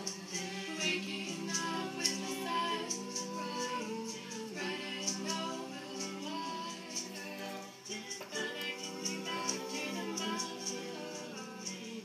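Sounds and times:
person singing folk song: 0:00.0 - 0:12.0.

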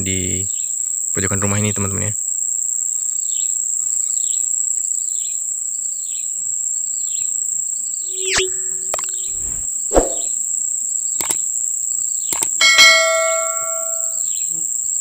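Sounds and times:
high-pitched insect drone: 0:07.9 - 0:10.3
short falling chirp: 0:08.0 - 0:10.3
swoosh sound effect: 0:08.1 - 0:10.3.

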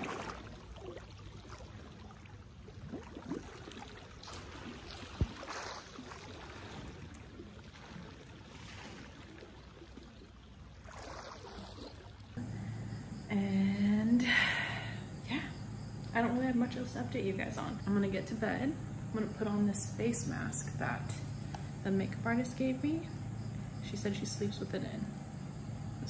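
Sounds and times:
pool water lapping and splashing: 0:00.0 - 0:13.0.

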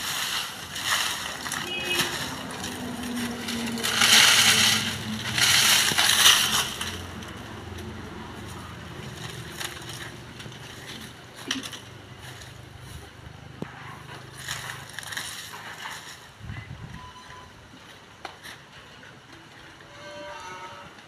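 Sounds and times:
dry leaves crackling and rustling: 0:00.0 - 0:16.5.

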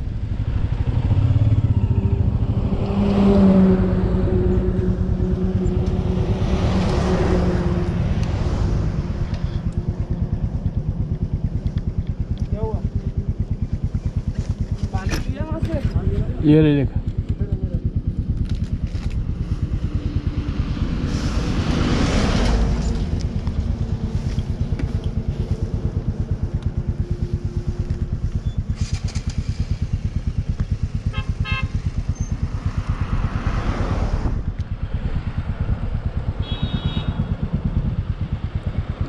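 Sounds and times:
motorcycle engine running: 0:00.0 - 0:39.0
rush of passing air: 0:19.3 - 0:24.3, 0:32.5 - 0:36.3.

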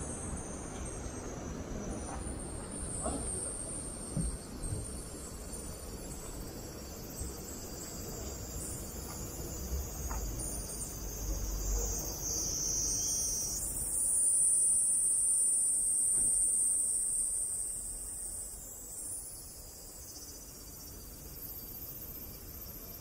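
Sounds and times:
cicadas buzzing: 0:00.0 - 0:23.0.

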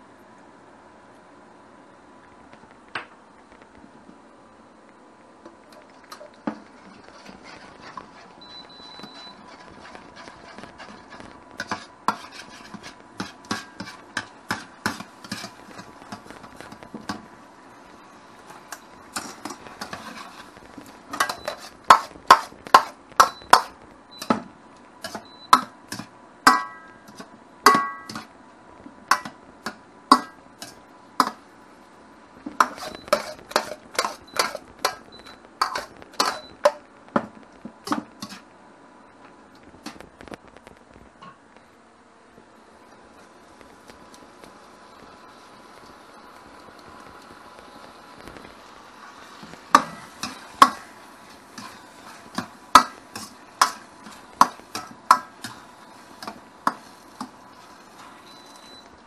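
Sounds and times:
utensils clinking against dishes: 0:32.6 - 0:36.6.

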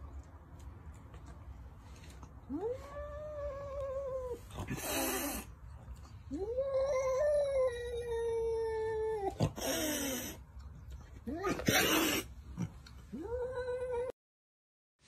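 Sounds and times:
cat hissing: 0:04.5 - 0:05.5, 0:09.4 - 0:10.4, 0:11.4 - 0:12.7.

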